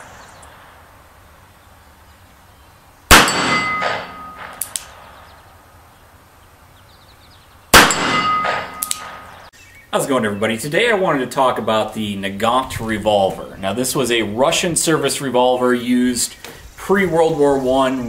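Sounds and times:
revolver shots: 3.1s - 5.1s, 7.8s - 9.4s.

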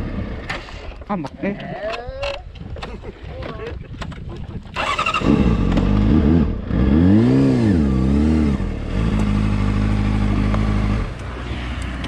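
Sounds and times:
motorcycle engine revving: 4.8s - 12.0s.

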